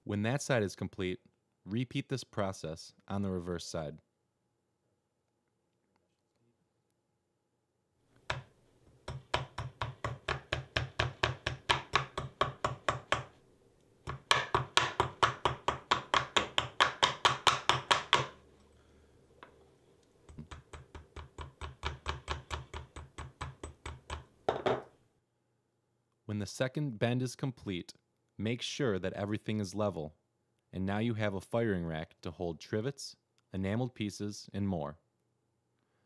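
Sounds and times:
hammer tapping metal mesh: 8.3 - 13.3, 14.1 - 18.4, 20.3 - 24.3.

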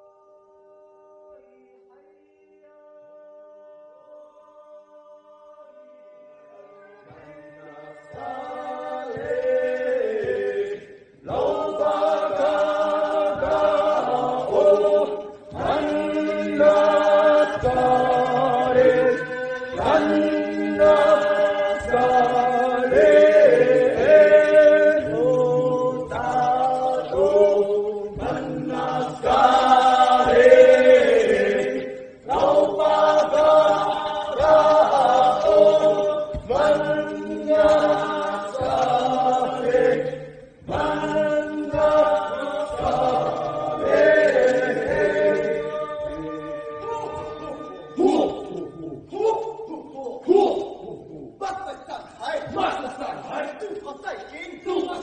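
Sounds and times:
group chanting in harmony: 0.0 - 55.0.

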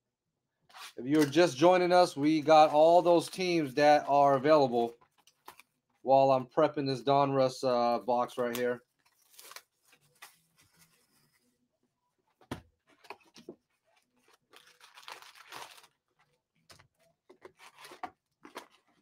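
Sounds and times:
foil packs rustling and crinkling: 8.6 - 11.3, 13.0 - 19.0.

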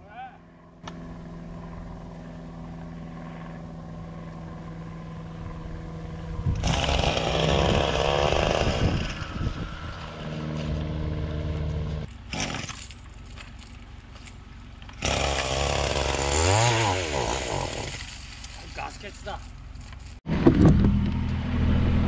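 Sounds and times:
string trimmer engine revving: 6.4 - 13.0, 14.9 - 18.7.

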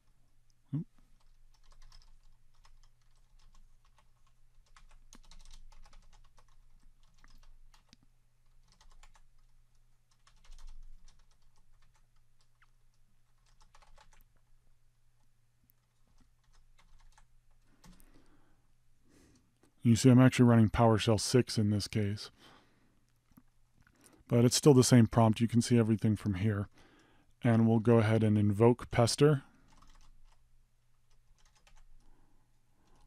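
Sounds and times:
typing on a keyboard: 1.2 - 12.7, 13.3 - 14.3, 15.9 - 18.2, 29.6 - 30.4, 31.0 - 32.1.

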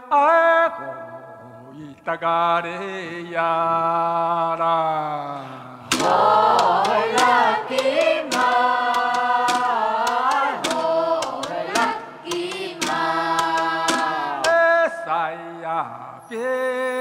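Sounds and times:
group singing a chant: 0.0 - 17.0
sharp percussive strikes: 5.9 - 14.8.

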